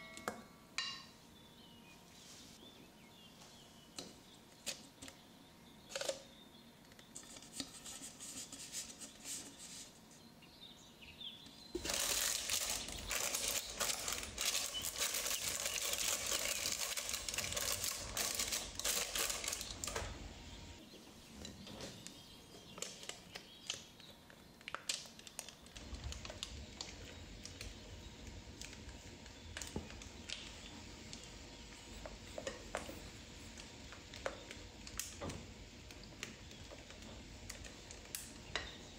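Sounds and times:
baking paper crinkling: 11.7s - 20.2s.

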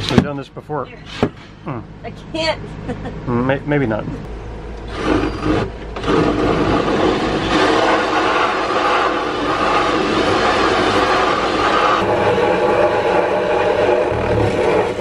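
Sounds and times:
drill cutting with hole saw: 4.9s - 15.0s.

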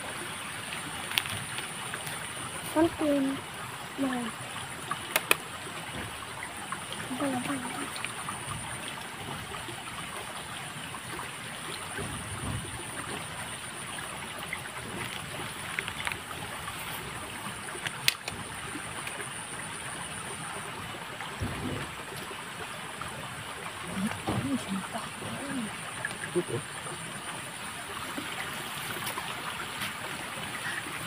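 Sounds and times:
river water flowing: 0.0s - 31.0s.

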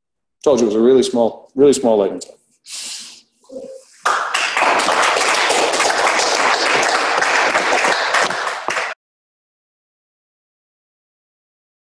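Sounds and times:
audience applauding: 4.0s - 9.0s.

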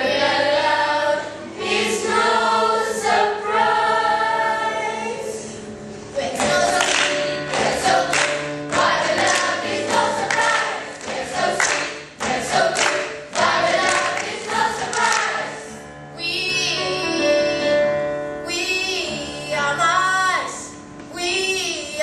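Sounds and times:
group singing: 0.0s - 5.5s, 6.2s - 15.7s.

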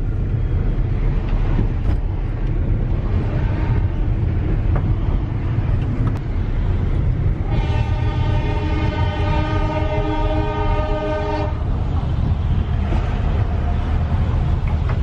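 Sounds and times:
vehicle rumble on road: 0.0s - 15.0s
train horn: 7.4s - 11.7s.

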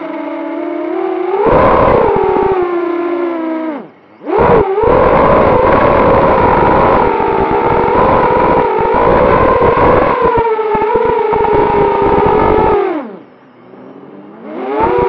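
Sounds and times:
drone propellers whining: 0.0s - 15.0s
wind buffeting camera: 1.4s - 3.4s, 4.2s - 13.3s.

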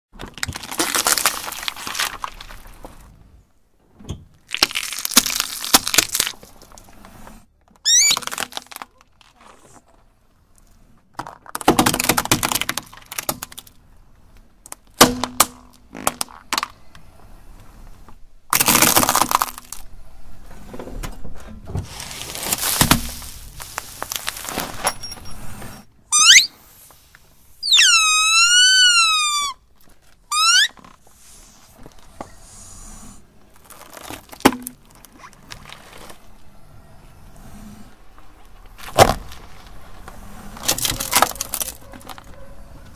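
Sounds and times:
tyre crushing plastic objects: 0.2s - 3.3s, 4.3s - 7.0s, 7.6s - 9.8s, 11.1s - 13.8s, 14.7s - 16.8s, 18.5s - 20.0s, 21.8s - 24.9s, 33.5s - 36.4s, 38.5s - 42.3s
wavering squeal: 7.9s - 8.2s, 26.1s - 26.5s, 27.6s - 29.6s, 30.3s - 30.8s.

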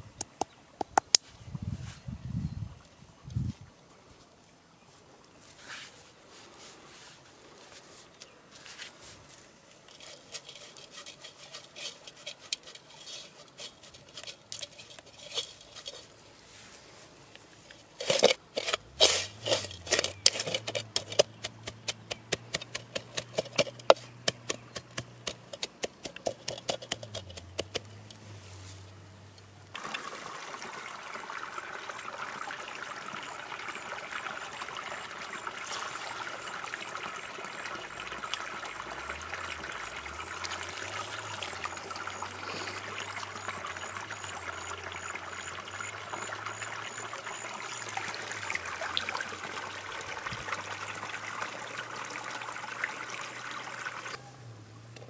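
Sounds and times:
stream water running: 5.1s - 55.0s
seeds rattling in clay pot: 9.7s - 16.3s, 17.6s - 28.2s, 35.6s - 54.2s.

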